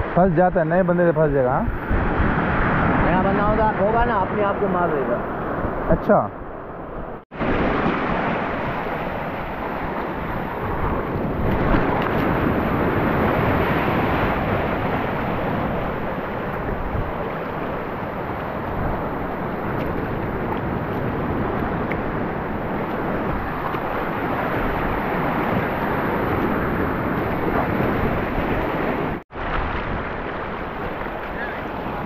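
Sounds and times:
wind buffeting microphone: 1.3 - 32.0
waves breaking over rocks: 7.3 - 32.0.

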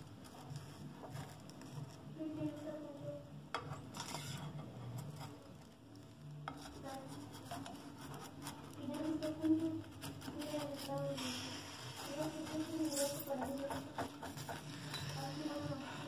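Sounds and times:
spatula scraping frying pan: 3.6 - 5.5, 6.5 - 16.0.

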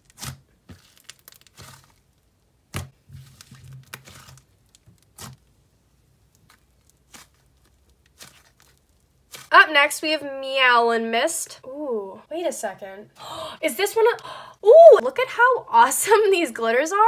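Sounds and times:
slime crackling and tearing: 0.0 - 9.5.

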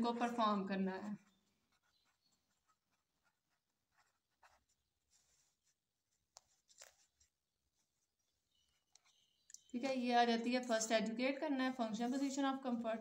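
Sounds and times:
pen scratching on paper: 1.2 - 9.2
paper rustling: 1.6 - 9.2.

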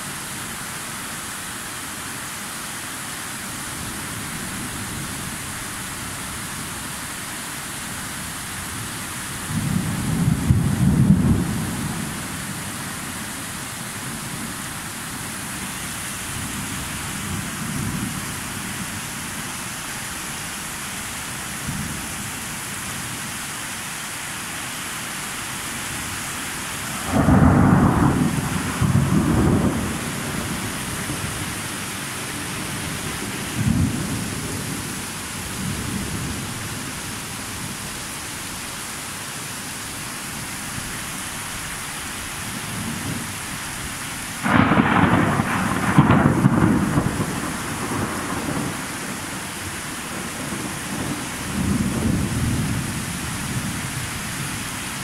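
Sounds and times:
steady rain hissing: 0.0 - 55.0
rolling thunder: 9.4 - 12.2, 27.0 - 31.7, 32.5 - 34.9, 44.4 - 49.4, 50.1 - 52.9.

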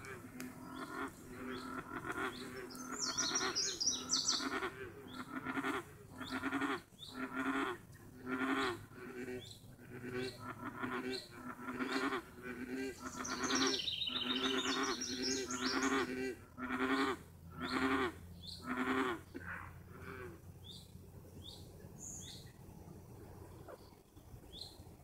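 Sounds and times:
bird chirping: 0.0 - 5.4, 13.0 - 16.1, 20.6 - 22.6
frogs croaking: 0.0 - 24.7.

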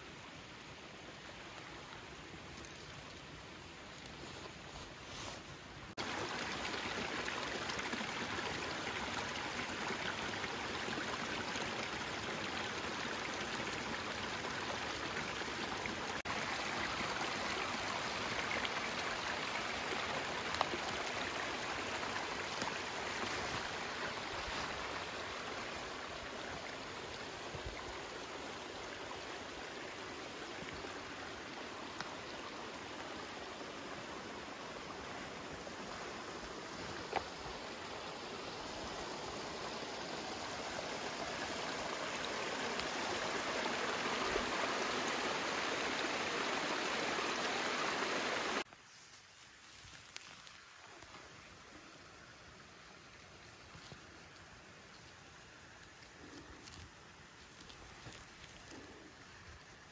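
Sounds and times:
brook splashing over rocks: 6.0 - 48.7.

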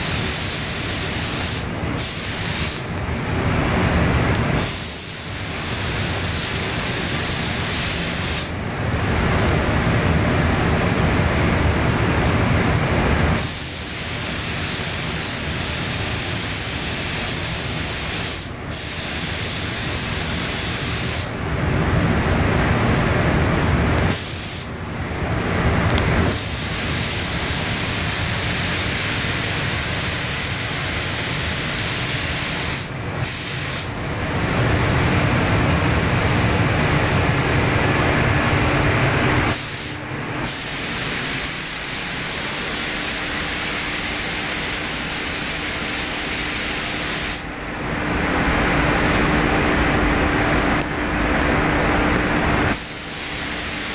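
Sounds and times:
paint spray gun hissing: 0.0 - 2.9, 4.6 - 8.6, 13.4 - 21.3, 24.1 - 24.7, 26.2 - 33.9, 39.5 - 47.5, 52.7 - 53.9
steady low hum: 0.0 - 53.9.

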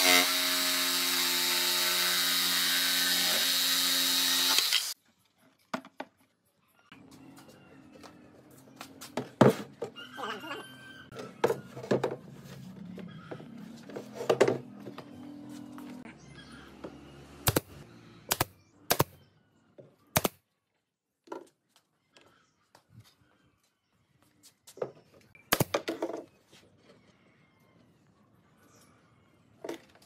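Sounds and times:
pneumatic nail gun firing: 2.3 - 5.0, 17.4 - 17.7, 18.3 - 19.1, 20.2 - 20.4.

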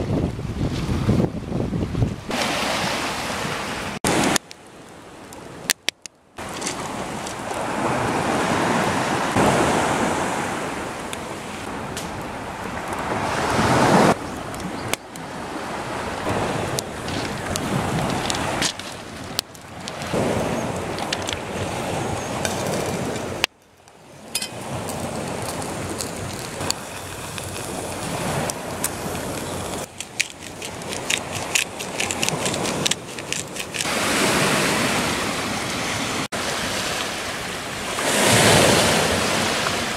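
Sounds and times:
waves washing onto pebble beach: 2.3 - 5.7, 6.4 - 14.5, 15.2 - 23.4, 24.2 - 39.9
campfire crackling: 4.1 - 8.2, 10.8 - 34.6.

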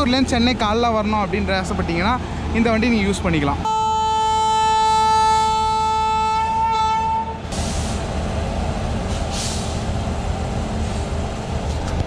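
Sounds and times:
rail noise rumble: 0.0 - 12.0
train horn: 3.7 - 7.4.

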